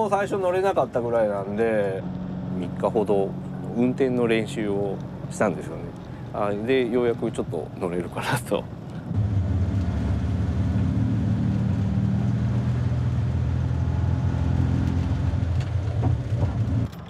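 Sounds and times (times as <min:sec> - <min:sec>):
car engine running: 0:09.0 - 0:16.9.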